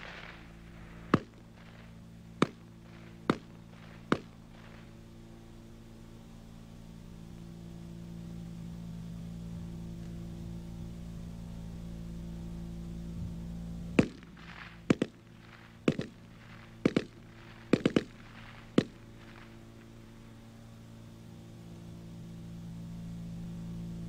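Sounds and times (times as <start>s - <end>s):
rifle firing short bursts: 0.0s - 5.0s, 14.0s - 19.6s
steady low hum: 0.0s - 24.0s.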